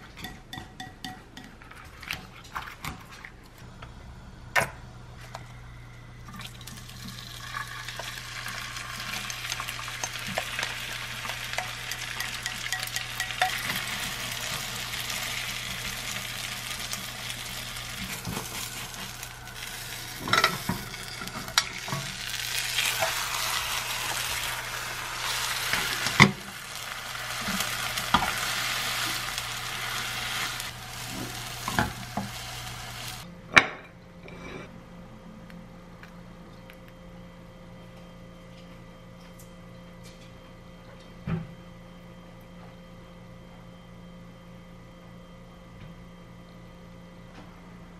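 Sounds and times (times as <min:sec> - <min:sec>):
food sizzling in a pan: 0:06.8 - 0:33.2.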